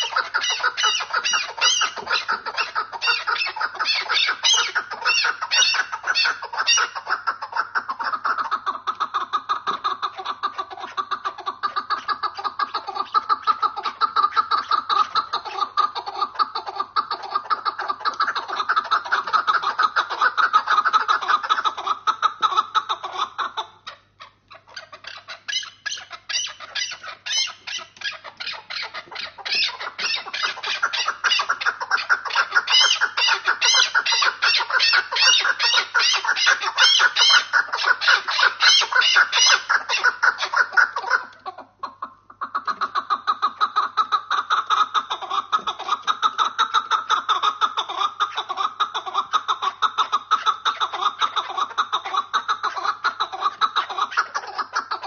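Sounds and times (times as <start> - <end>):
partridges calling: 0.0 - 23.6, 24.2 - 41.3.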